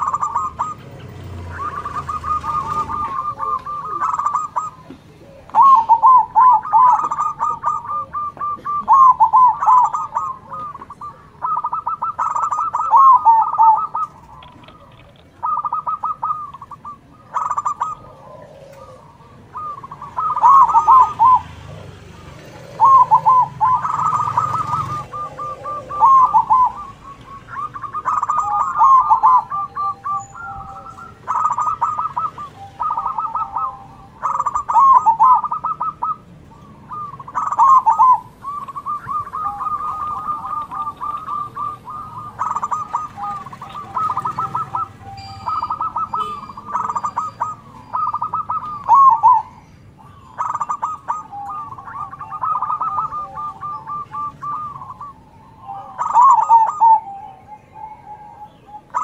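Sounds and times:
doves cooing: 0.0s - 59.0s.

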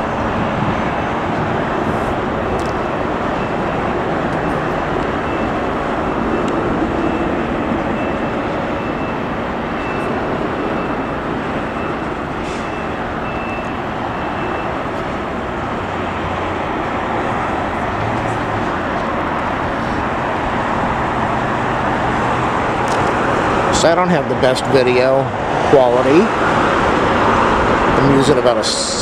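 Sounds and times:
cars passing: 0.0s - 29.0s
distant jet engines: 0.0s - 29.0s
faint high beeping: 2.8s - 14.8s.

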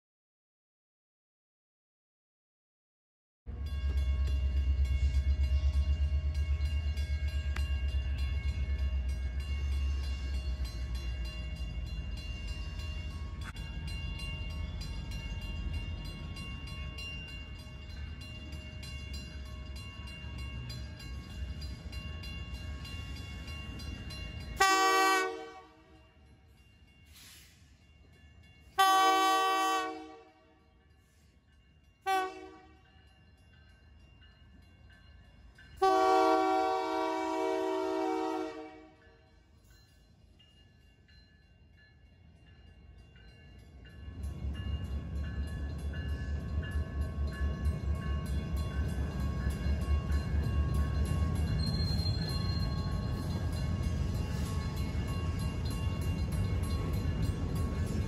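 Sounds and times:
locomotive air horn: 24.6s - 25.9s, 28.8s - 30.5s, 32.0s - 32.8s, 35.8s - 39.0s.

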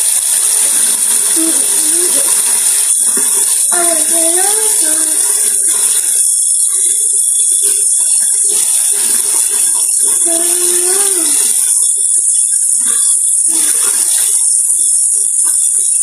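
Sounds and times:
tap water running: 0.0s - 16.0s
child humming: 3.8s - 5.3s, 10.2s - 11.5s.

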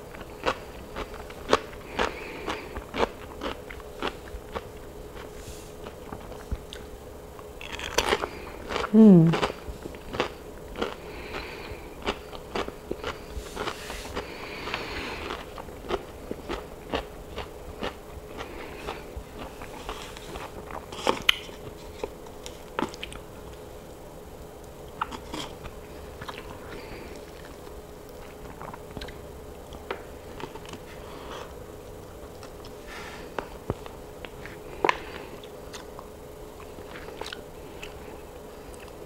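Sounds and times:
faint steady hum: 0.0s - 39.0s
person biting and chewing: 0.1s - 23.6s, 24.9s - 31.6s, 33.8s - 38.0s.

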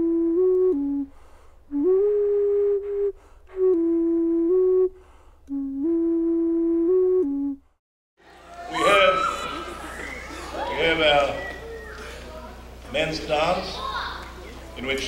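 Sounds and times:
flute playing slow melody: 0.0s - 7.7s.

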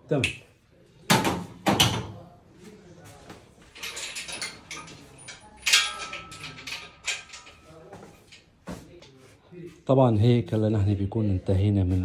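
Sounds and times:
hand tools clanking on metal: 3.7s - 8.6s.

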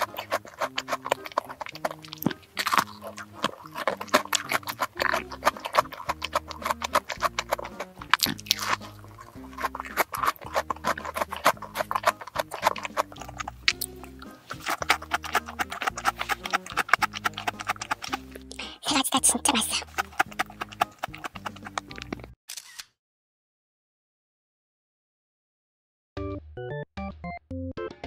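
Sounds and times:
background music low notes: 0.0s - 22.4s
crisp chewing: 0.0s - 22.4s
wet mouth clicks: 0.0s - 22.4s.

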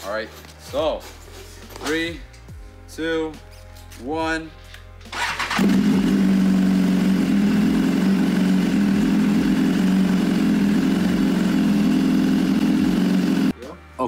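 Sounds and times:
motorcycle engine idling: 5.1s - 13.5s.

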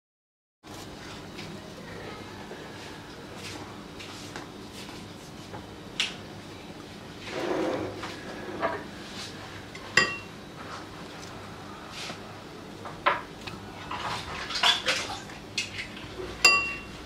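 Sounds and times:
utensils and cookware clinking: 9.9s - 10.3s, 15.6s - 17.0s.

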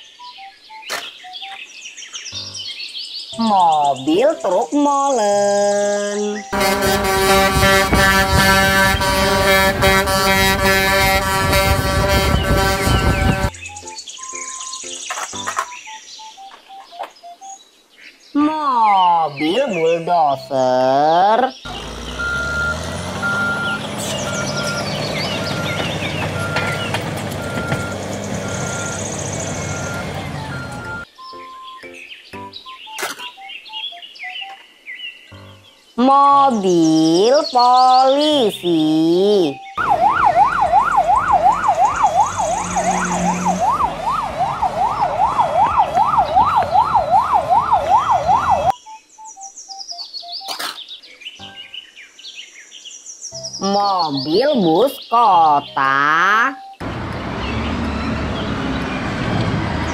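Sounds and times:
bulldozer diesel engine running: 6.6s - 13.5s, 21.7s - 31.0s, 39.8s - 48.7s, 56.8s - 59.9s
backup alarm beeping: 21.7s - 31.8s, 39.6s - 49.5s
police siren yelp: 27.4s - 31.1s, 39.8s - 48.8s
faint falling notes: 39.8s - 48.7s.

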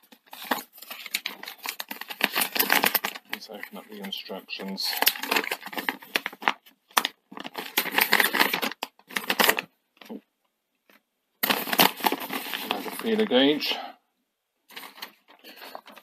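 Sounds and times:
paper rustling and crinkling: 0.0s - 10.2s, 10.9s - 13.6s, 14.7s - 16.0s.

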